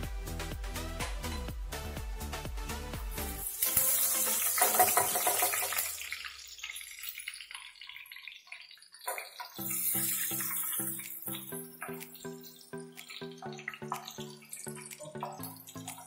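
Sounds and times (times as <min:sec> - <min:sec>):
background music with beat: 0:00.0 - 0:05.8, 0:09.6 - 0:16.0
spices sizzling in oil: 0:03.2 - 0:13.2.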